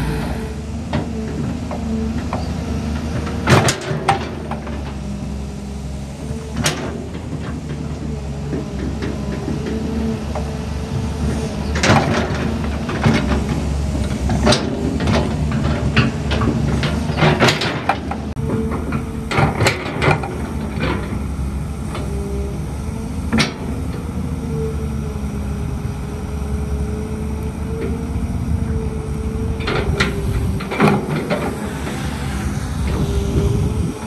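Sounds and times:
excavator engine running: 0.0 - 34.0
metallic clanks and knocks: 0.9 - 5.0, 14.3 - 21.2, 29.6 - 31.6.

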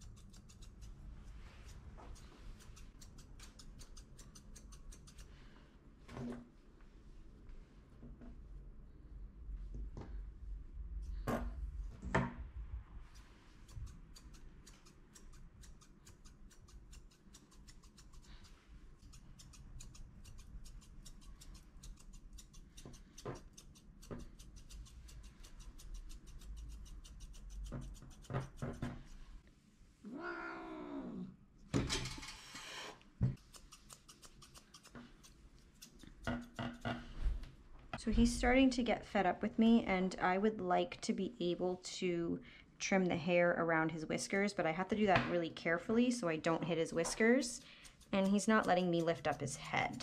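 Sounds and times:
scissors snipping: 1.7 - 5.3, 13.8 - 28.6, 33.4 - 36.2
cat crying: 30.1 - 31.2.

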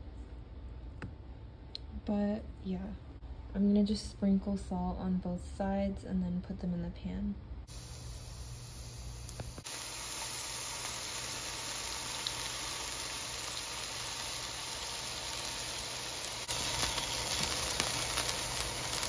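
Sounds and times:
mushrooms sizzling in hot oil: 7.7 - 19.0
oil crackling: 9.2 - 19.0.

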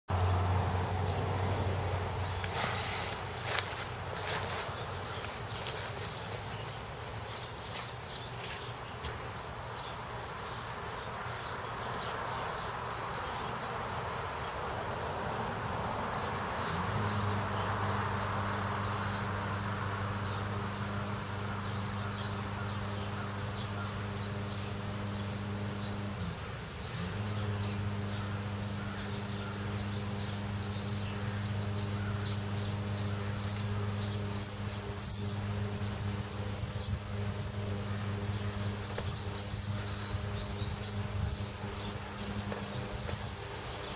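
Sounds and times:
car passing: 0.1 - 6.7, 11.2 - 43.9
steady low hum: 0.1 - 43.9.

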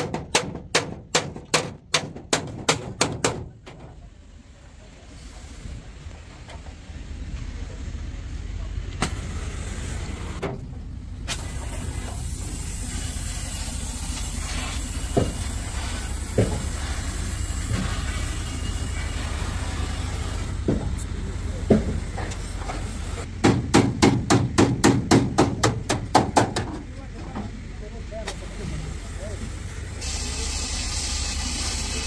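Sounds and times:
hammer blows on sheet steel: 0.0 - 3.8, 14.4 - 18.2, 23.4 - 26.7.

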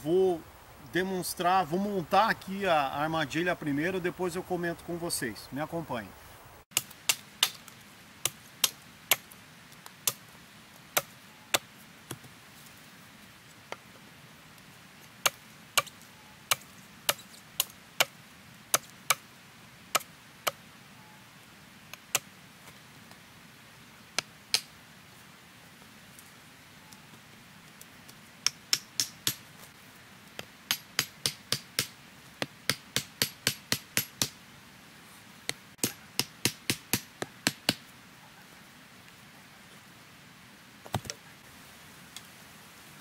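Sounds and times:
machete striking wood: 6.7 - 9.3, 28.4 - 29.4, 30.7 - 31.9, 32.7 - 34.4, 35.8 - 37.8.

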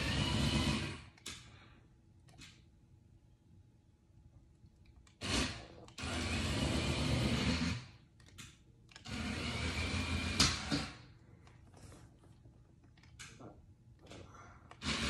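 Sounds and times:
toy truck motor whirring: 5.1 - 8.0, 8.9 - 11.0, 14.7 - 15.0.

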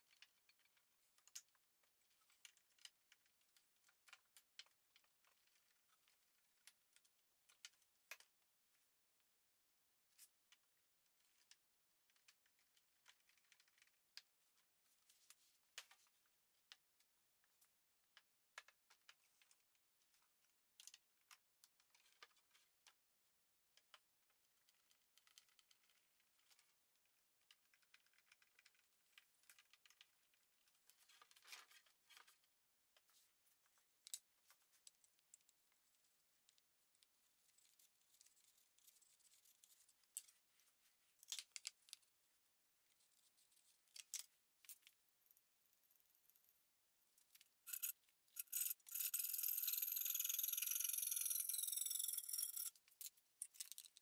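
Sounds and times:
sharp ticks: 47.7 - 52.7.

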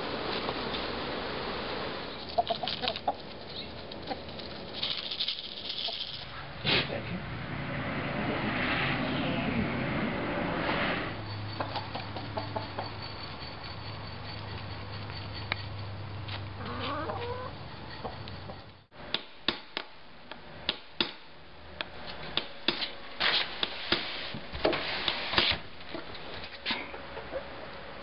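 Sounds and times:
chickens clucking: 2.2 - 4.6, 11.5 - 13.4, 16.6 - 18.7, 25.9 - 27.9
low hum: 3.2 - 16.6.

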